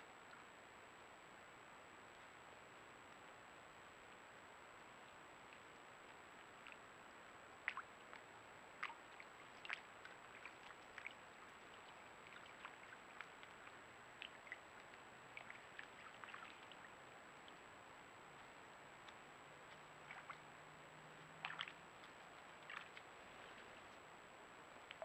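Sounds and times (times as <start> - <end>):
hooves splashing in water: 7.6 - 17.6, 19.0 - 24.0.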